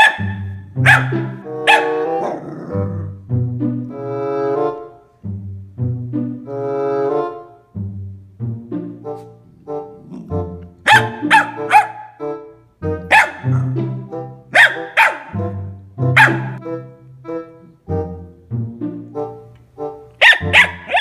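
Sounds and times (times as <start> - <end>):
puppy yapping: 0.0 - 2.9, 10.0 - 12.2, 13.1 - 13.8, 14.5 - 15.4, 16.2 - 16.6, 20.2 - 21.0
background music with bass line: 0.2 - 14.6, 15.3 - 20.9.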